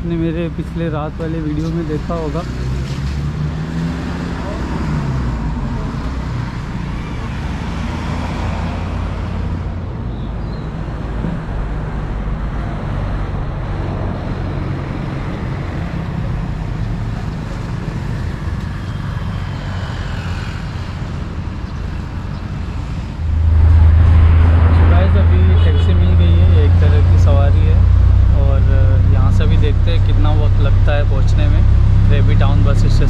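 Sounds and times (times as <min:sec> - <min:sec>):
road traffic passing: 0:00.0 - 0:33.0
low engine drone: 0:22.8 - 0:33.0.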